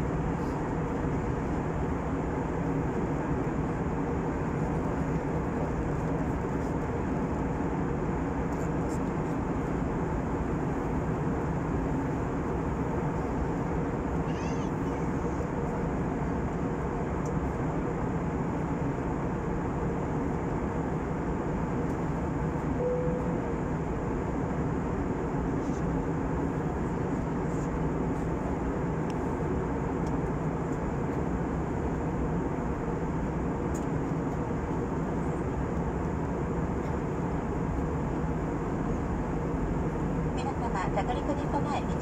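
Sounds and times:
airliner cabin engine drone: 0.0s - 42.0s
faint steady hum: 0.0s - 42.0s
brief faint tone: 22.8s - 23.6s.

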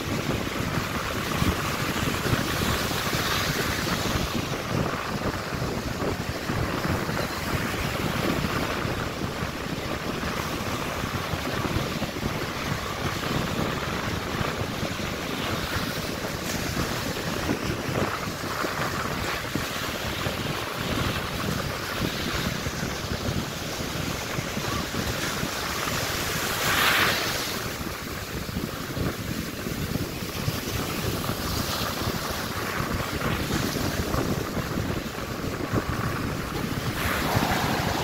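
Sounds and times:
wind buffeting microphone: 0.0s - 38.0s
ocean surf breaking: 32.8s - 38.0s.

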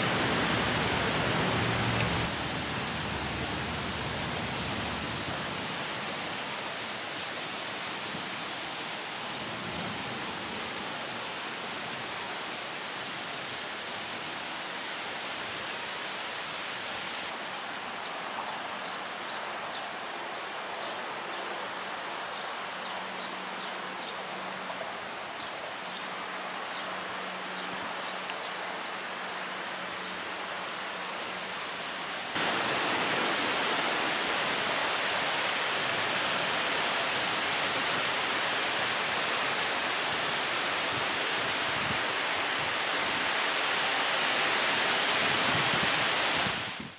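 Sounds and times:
wind across the microphone: 0.0s - 14.8s, 31.8s - 46.9s.

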